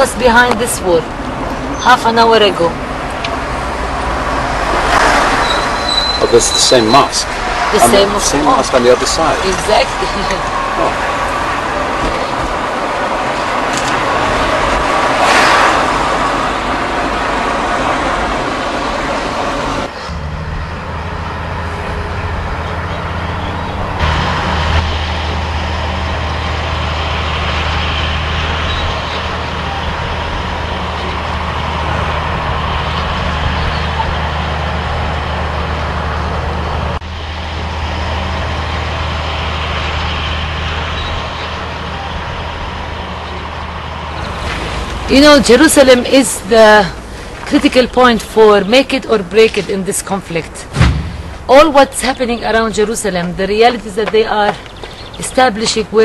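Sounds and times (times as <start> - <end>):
road noise rushing: 0.0 - 56.0
low engine hum: 15.9 - 48.1.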